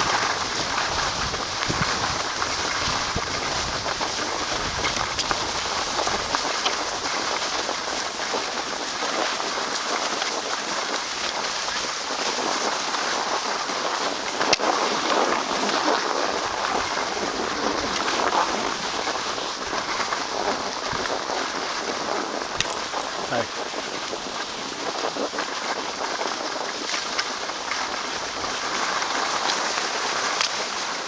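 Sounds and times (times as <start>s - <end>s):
skis hissing on snow: 0.0s - 31.0s.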